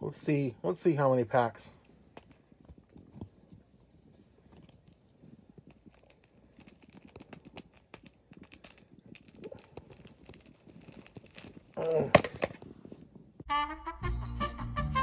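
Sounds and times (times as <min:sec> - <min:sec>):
hands handling packaging: 0:02.1 - 0:13.4
scissors snipping plastic wrap: 0:05.9 - 0:12.6.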